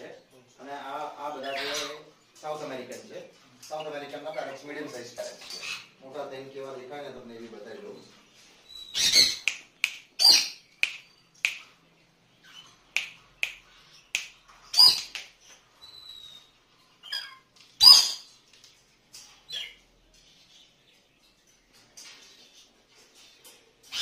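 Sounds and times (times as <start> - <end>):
cockatoo squawking: 8.9 - 9.5, 10.2 - 10.6, 14.7 - 15.2, 17.1 - 18.3.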